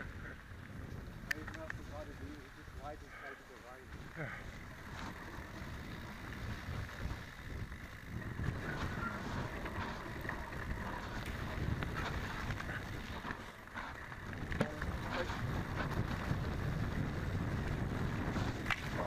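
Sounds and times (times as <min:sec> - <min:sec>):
bike rattling over bumps: 0:00.0 - 0:19.0
tyres rolling on dirt trail: 0:00.0 - 0:19.0
wind on microphone: 0:03.9 - 0:19.0.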